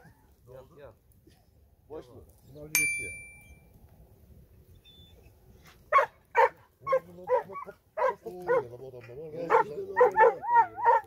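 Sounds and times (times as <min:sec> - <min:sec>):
short metallic ding: 0:02.8 - 0:03.6
dog barking: 0:05.9 - 0:08.7, 0:09.4 - 0:11.0.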